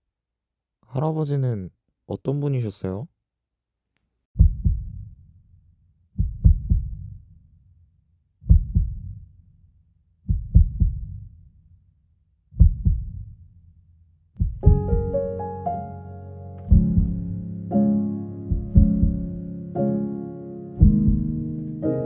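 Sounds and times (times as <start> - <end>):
heartbeat double thumps: 4.4 - 5.1, 6.2 - 7.2, 8.5 - 9.2, 10.3 - 11.3, 12.6 - 13.4, 14.4 - 15.3, 16.7 - 17.4, 18.5 - 19.5, 20.8 - 21.4.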